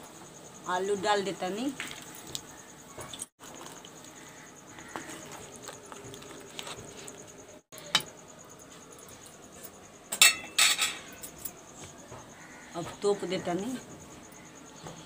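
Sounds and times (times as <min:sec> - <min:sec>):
steel utensils clanking: 0:10.1 - 0:11.6.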